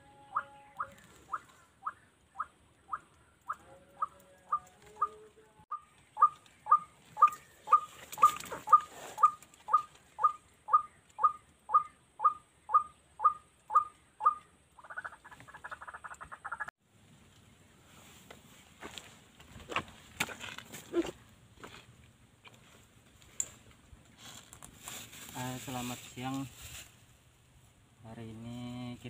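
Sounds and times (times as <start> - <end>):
bird calling sharp repeated note: 0.0 - 16.6.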